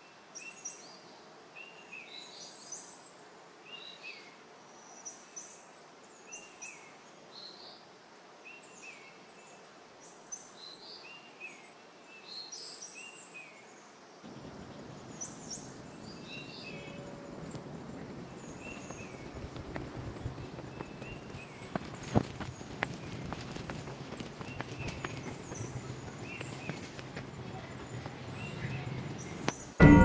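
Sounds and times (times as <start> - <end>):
outdoor hiss: 0.0 - 29.8
footsteps on stone steps: 16.8 - 29.7.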